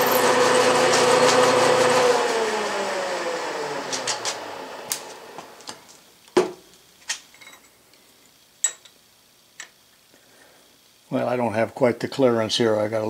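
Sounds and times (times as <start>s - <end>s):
milling machine spindle winding down: 0.0s - 5.7s.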